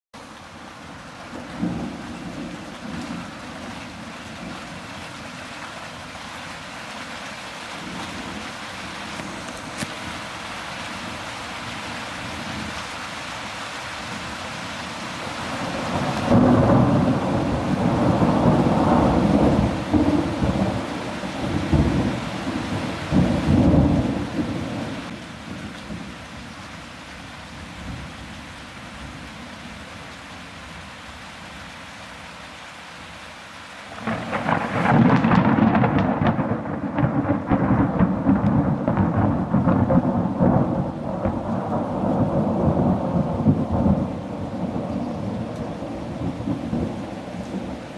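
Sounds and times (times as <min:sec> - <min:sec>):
rain hiss: 0:00.2 - 0:47.9
thunder rumbling: 0:01.3 - 0:04.8, 0:15.4 - 0:26.1, 0:34.0 - 0:47.9
loud thunder roll: 0:15.6 - 0:25.2, 0:34.0 - 0:47.8.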